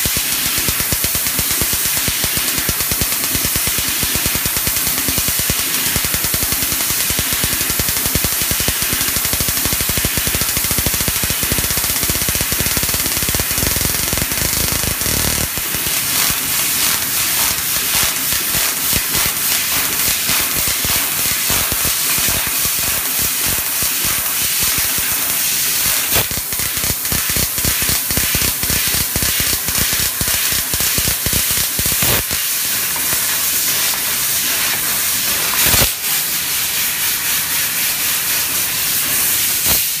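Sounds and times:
sharp pops: 0:00.0 - 0:25.2, 0:25.8 - 0:34.0, 0:35.5 - 0:36.0
laser cutter hissing: 0:00.0 - 0:40.0.

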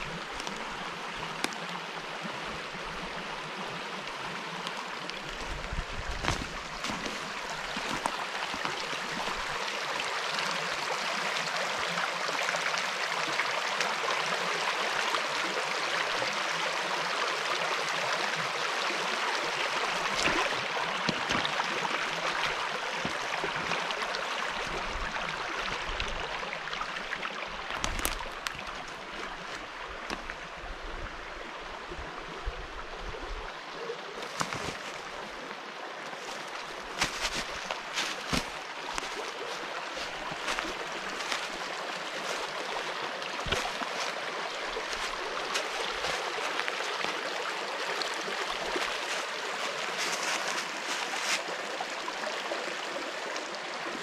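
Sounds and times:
stream babbling over stones: 0:00.0 - 0:54.0.

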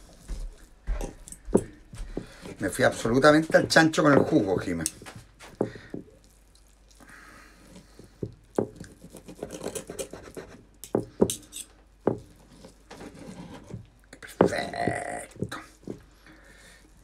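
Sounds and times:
knife scraping on wooden board: 0:00.0 - 0:05.7, 0:07.6 - 0:14.5.

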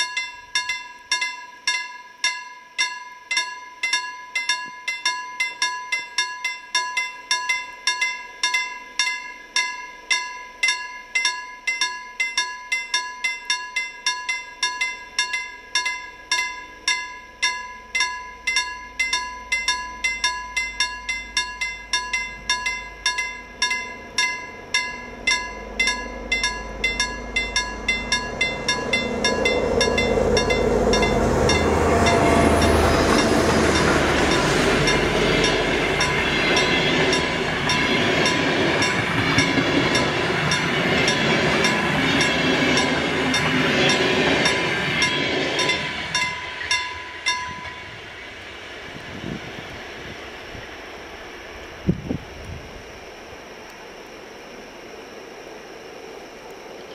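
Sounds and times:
level crossing bell ringing: 0:00.0 - 0:47.8
train rumble: 0:14.7 - 0:56.9.

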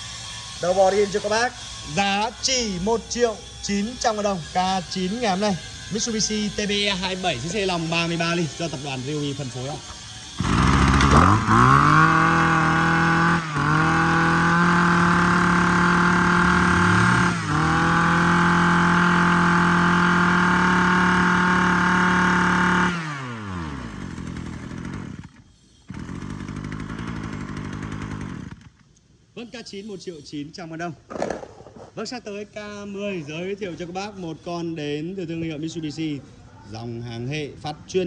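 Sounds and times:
brush cutter engine revving: 0:00.0 - 0:28.9.

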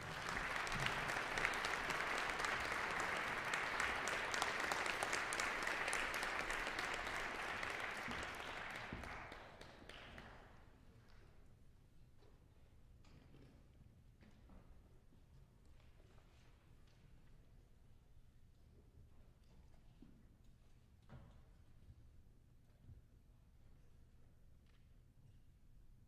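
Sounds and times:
audience applauding: 0:00.0 - 0:10.3.

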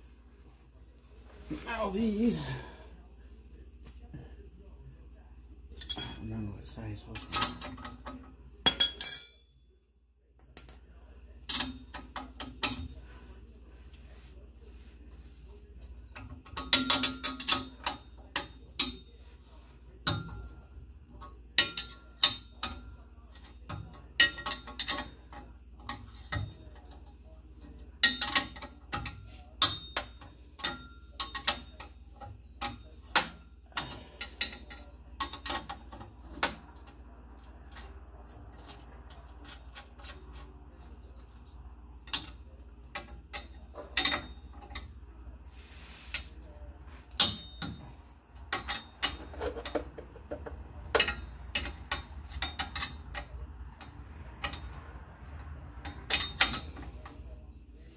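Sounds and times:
metal tools clinking: 0:00.0 - 0:00.4, 0:05.7 - 0:09.8, 0:10.4 - 0:13.0, 0:47.0 - 0:54.9.

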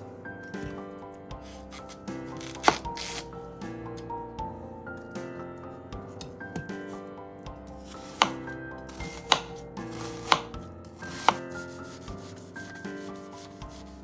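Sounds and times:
knife chopping on wooden board: 0:01.4 - 0:03.2, 0:07.8 - 0:13.5.

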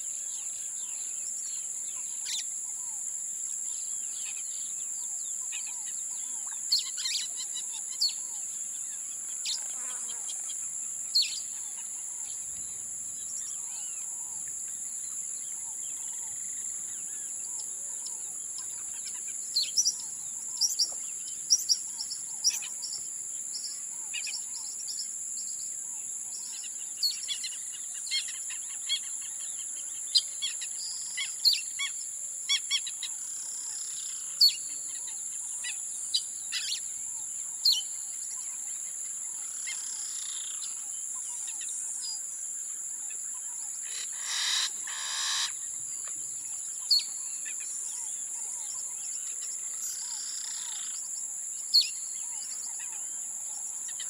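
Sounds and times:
high-pitched insect drone: 0:03.7 - 0:54.0
birds chirping and calling: 0:15.3 - 0:23.0, 0:43.4 - 0:46.1
loud long bird call: 0:43.8 - 0:45.6.

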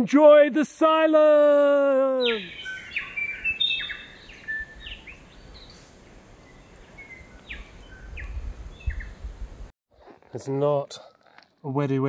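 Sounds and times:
bird chirps: 0:02.2 - 0:09.3.

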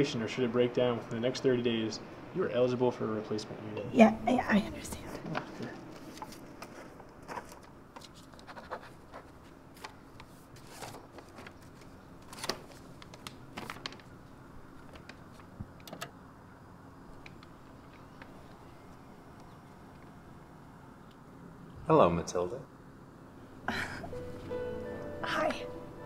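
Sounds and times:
low room hum: 0:00.0 - 0:26.0
scratches and rustles of handling: 0:04.9 - 0:14.1.

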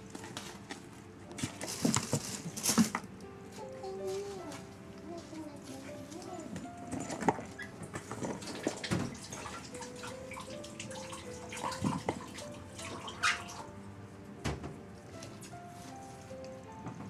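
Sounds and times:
cardboard rustling: 0:00.0 - 0:03.0
soft melodic background music: 0:00.0 - 0:17.0.

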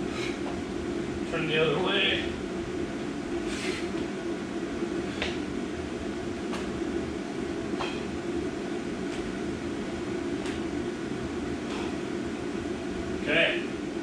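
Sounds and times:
low mechanical hum: 0:00.0 - 0:14.0
soft footfalls on rubber mats: 0:09.0 - 0:09.4.

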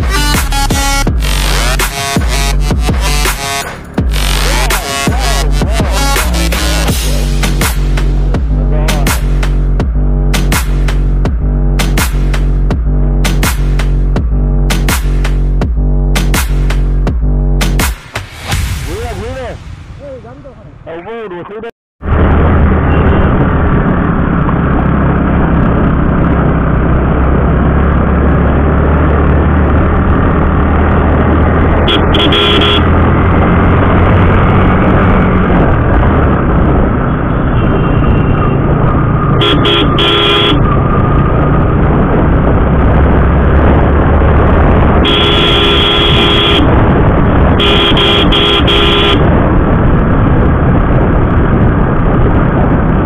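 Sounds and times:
vehicle horn honking: 0:00.0 - 0:06.4, 0:31.9 - 0:33.0, 0:37.3 - 0:38.6, 0:39.3 - 0:40.7, 0:45.0 - 0:46.7, 0:47.6 - 0:49.3
motorcycle engine and road noise: 0:00.0 - 0:53.0.

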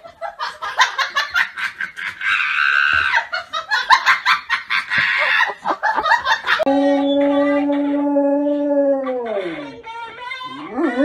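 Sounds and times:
person laughing hard: 0:00.5 - 0:06.8.

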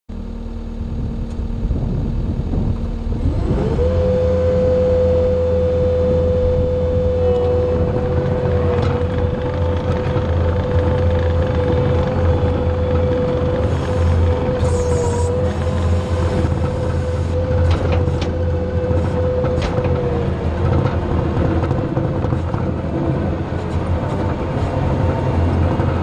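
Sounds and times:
diesel engine revving: 0:00.8 - 0:26.0.

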